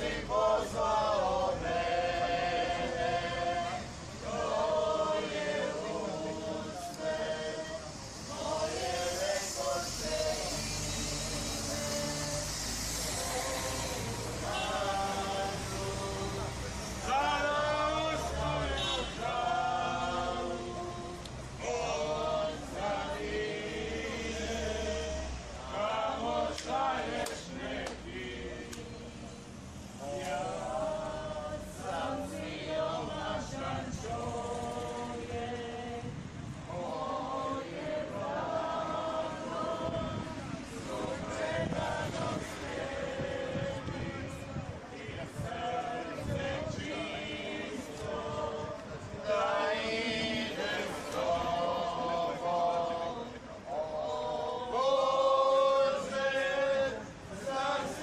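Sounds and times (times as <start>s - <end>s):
group singing a hymn: 0.0s - 58.0s.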